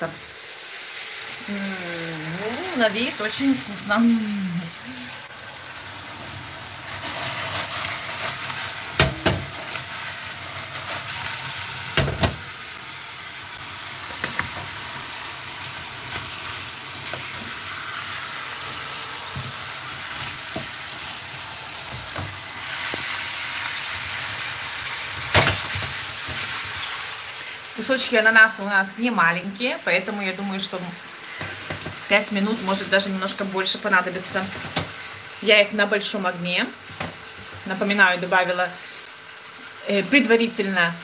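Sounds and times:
pineapple sizzling in frying pan: 0.0 - 41.0
sharp knocks against pan: 9.0 - 9.5.

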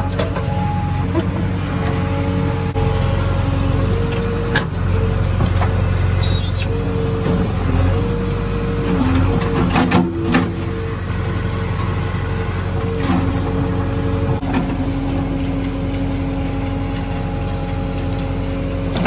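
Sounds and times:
hydraulic whine: 0.0 - 8.0
diesel engine running: 0.0 - 19.0.

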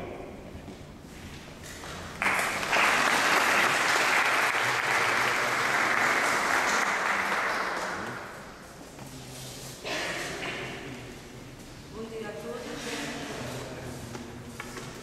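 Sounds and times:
audience applauding: 2.2 - 8.3.

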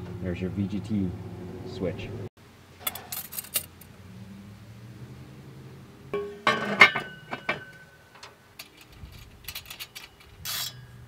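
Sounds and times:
metal tool clinking on metal: 2.8 - 3.8, 6.2 - 11.0.

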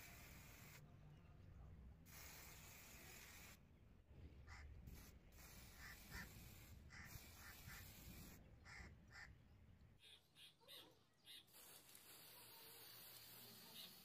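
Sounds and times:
spray paint can hissing: 0.0 - 0.8, 2.1 - 3.6, 4.9 - 8.4, 11.4 - 14.0.

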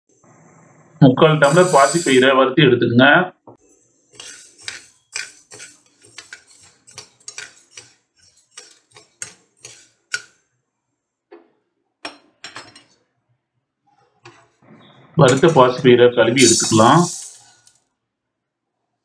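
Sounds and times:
ladle scraping beans in pan: 3.7 - 10.4, 14.1 - 14.6, 16.4 - 17.8.

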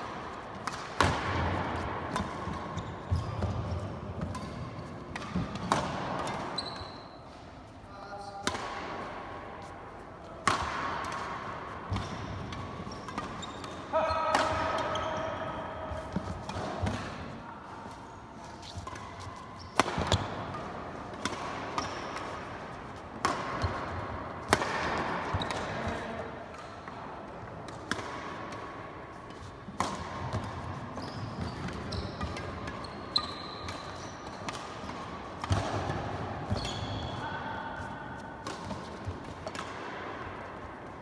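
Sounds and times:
rackets hitting shuttlecock: 0.0 - 7.4, 8.4 - 9.4, 10.4 - 41.0
shoes on court: 17.8 - 20.6.

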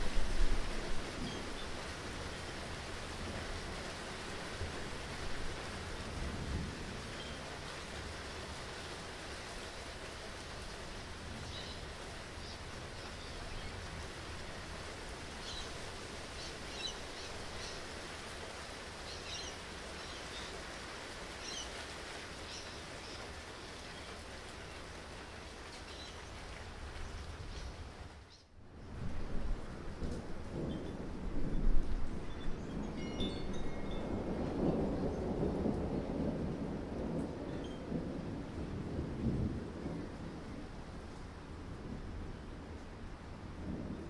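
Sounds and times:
steady rain: 0.0 - 44.0
low rumble of thunder: 4.6 - 7.6, 28.8 - 44.0.

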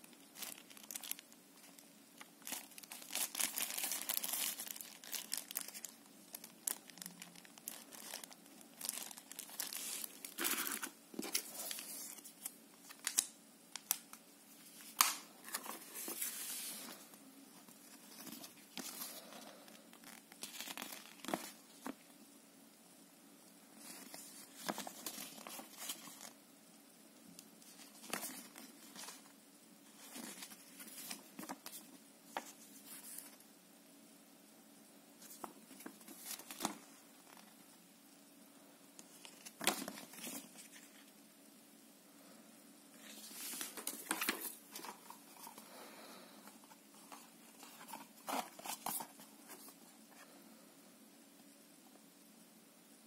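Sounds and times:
paper rustling and crinkling: 0.3 - 1.8, 2.4 - 22.0, 23.8 - 26.4, 27.6 - 29.3, 29.9 - 33.4, 35.2 - 37.5, 39.0 - 41.1, 43.0 - 45.6, 46.4 - 49.9.

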